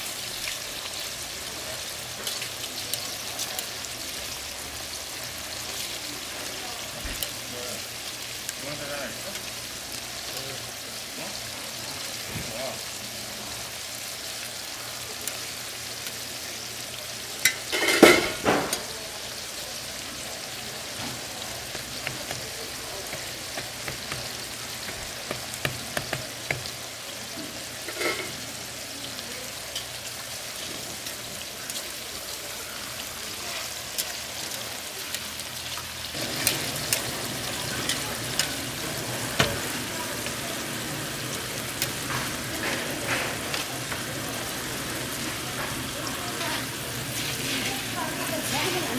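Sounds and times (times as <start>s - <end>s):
meat sizzling on griddle: 0.0s - 48.9s
metal spatula scraping griddle: 27.8s - 28.4s.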